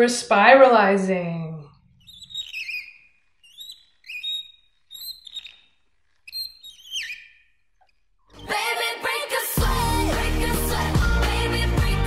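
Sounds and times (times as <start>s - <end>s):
spiralizer squeaking: 1.6s - 9.0s.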